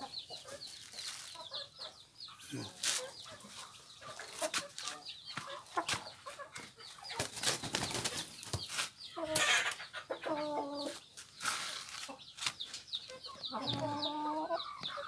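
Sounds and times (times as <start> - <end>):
chickens clucking: 0.0 - 15.0
wing flapping and scuffling: 2.7 - 9.8.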